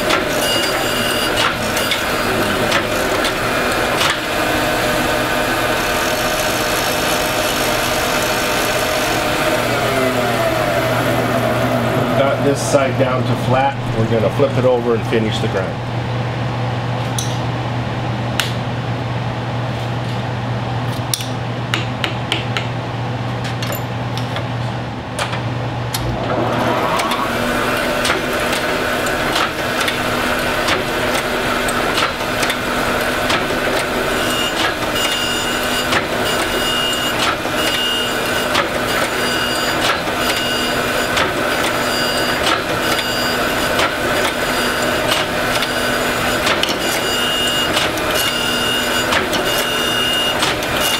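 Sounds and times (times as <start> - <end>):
surface grinder whine: 0.0 - 12.6, 26.0 - 50.9
abrasive wheel grinding metal: 0.0 - 12.8, 26.0 - 50.9
steady hum: 0.0 - 39.1.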